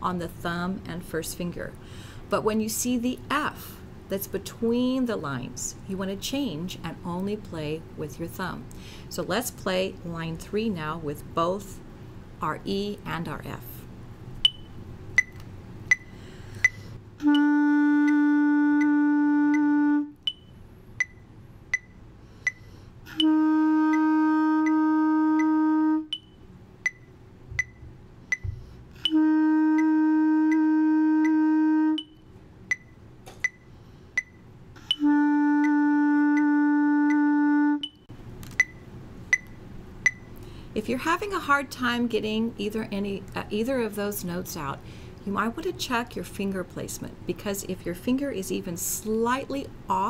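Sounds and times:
metronome ticking: 14.4s - 33.6s, 34.2s - 40.3s
clarinet long notes: 17.2s - 20.3s, 23.0s - 26.2s, 29.0s - 32.2s, 34.8s - 38.0s.

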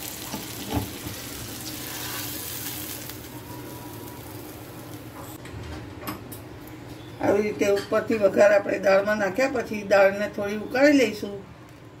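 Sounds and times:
hot oil sizzling: 0.0s - 5.4s.

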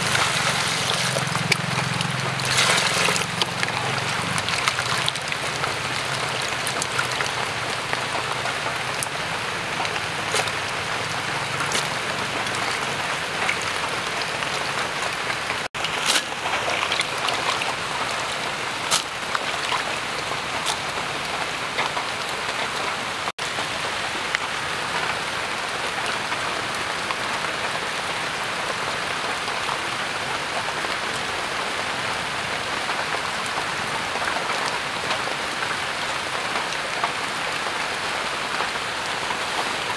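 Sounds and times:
falling water patter and hiss: 0.0s - 39.9s.

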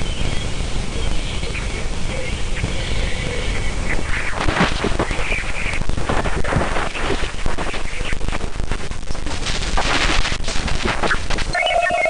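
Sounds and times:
loud static crackle: 0.0s - 12.0s.

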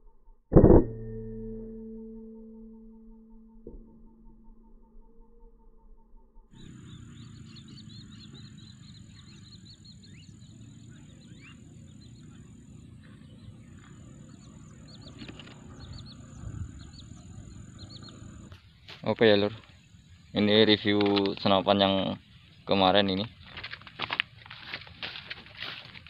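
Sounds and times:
faint steady tone: 0.1s - 20.8s
low rumbling noise: 0.6s - 20.9s
birds chirping: 6.5s - 26.0s
high insect drone: 6.6s - 18.6s.

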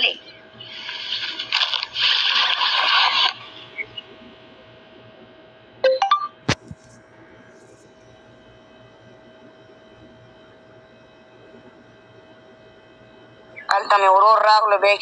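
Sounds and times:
smartphone notification chime: 5.8s - 6.4s.

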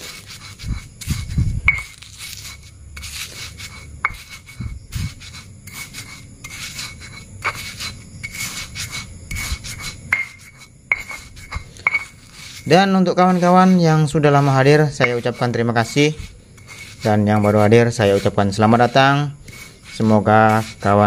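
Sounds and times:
stone pestle grinding in mortar: 0.0s - 21.0s
stone knocking on stone: 1.7s - 2.0s, 10.1s - 12.2s.

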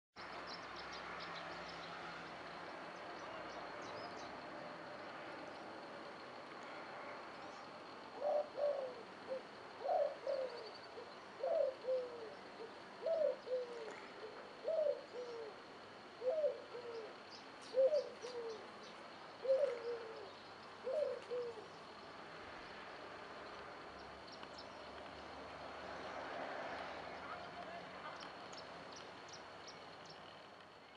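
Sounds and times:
background hiss: 0.2s - 30.9s
dove cooing: 8.0s - 18.7s, 19.4s - 21.8s.

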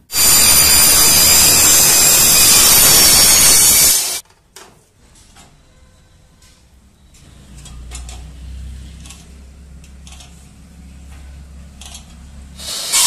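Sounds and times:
miter saw cutting metal: 0.0s - 4.2s, 12.6s - 13.0s.

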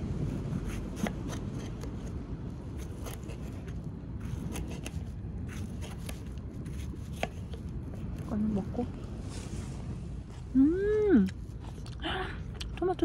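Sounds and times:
steady low rumble: 0.0s - 13.0s
knife cutting tomato: 0.3s - 2.2s, 2.8s - 7.6s.

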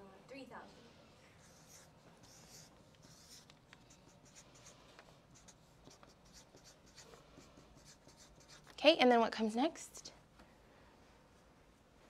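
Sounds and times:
marker drawing on paper: 1.2s - 8.7s.

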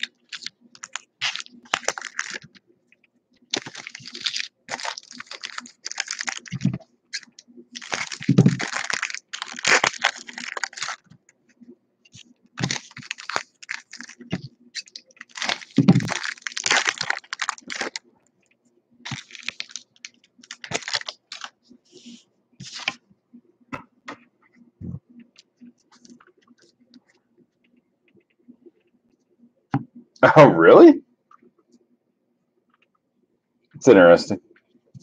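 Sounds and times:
foil wrappers crinkling: 0.0s - 2.6s, 3.5s - 11.1s, 12.1s - 18.0s, 19.1s - 21.6s.

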